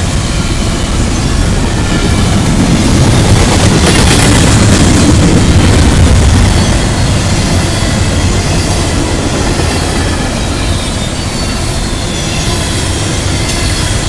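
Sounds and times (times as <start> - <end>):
train wheels rumbling on rails: 0.0 - 14.0
high wheel squeal: 0.2 - 1.8, 6.4 - 14.0.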